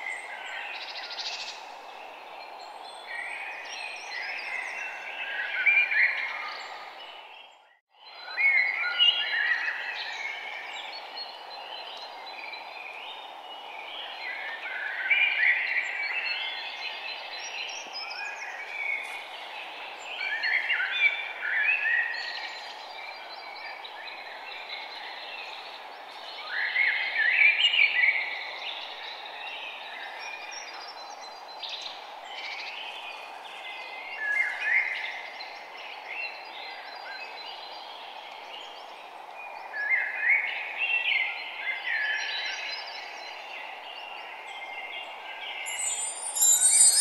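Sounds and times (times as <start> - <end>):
birds chirping: 45.7 - 47.0.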